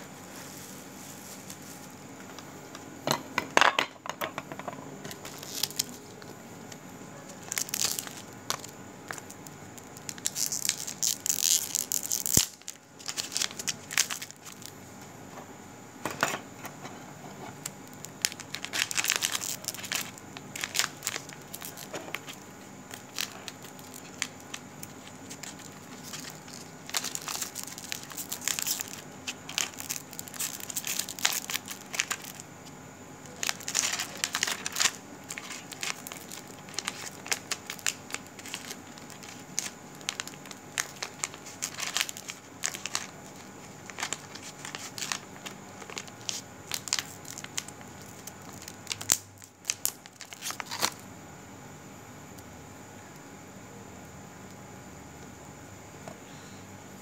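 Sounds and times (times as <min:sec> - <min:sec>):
crackling rustling rubbing: 0:00.0 - 0:02.1, 0:07.2 - 0:14.8, 0:17.3 - 0:51.0.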